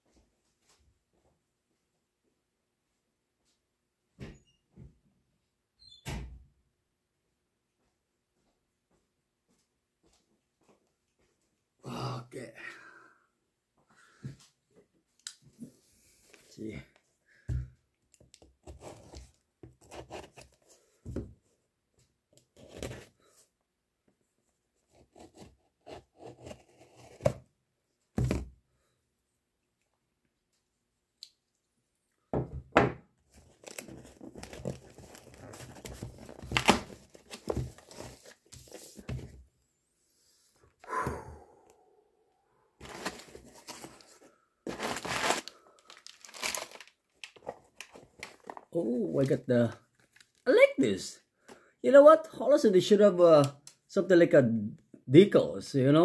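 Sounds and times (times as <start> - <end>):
cardboard rustling and crinkling: 18.2 - 21.4, 22.5 - 23.3, 33.3 - 39.5, 42.8 - 50.4
tape tearing: 33.5 - 38.9, 42.8 - 44.1, 44.7 - 48.6.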